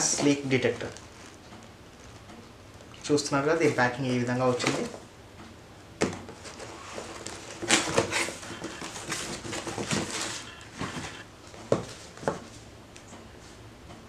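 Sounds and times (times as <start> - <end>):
cardboard rustling and scraping: 6.3 - 12.6.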